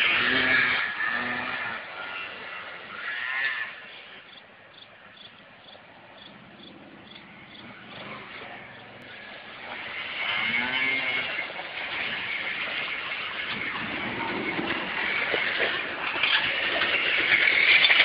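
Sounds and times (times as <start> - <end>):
atv engines revving: 0.0 - 4.2, 6.2 - 18.0.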